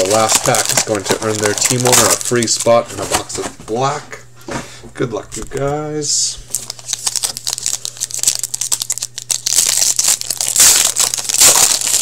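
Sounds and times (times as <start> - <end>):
card packaging tearing and crinkling: 0.0 - 3.4, 6.5 - 12.0.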